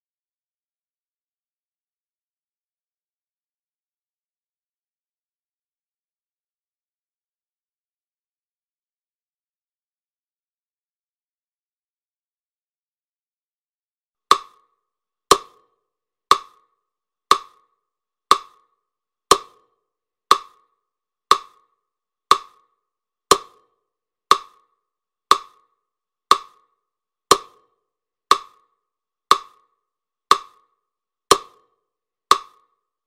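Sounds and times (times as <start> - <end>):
sharp ticks: 16.3 - 16.7, 17.3 - 17.7, 18.3 - 18.7, 20.3 - 20.7, 21.3 - 21.7, 22.3 - 22.7, 23.3 - 23.6, 24.3 - 24.7, 25.3 - 25.7, 26.3 - 26.7, 27.3 - 27.6, 28.3 - 28.7, 29.3 - 29.7, 30.3 - 30.7, 31.3 - 31.6, 32.3 - 32.7.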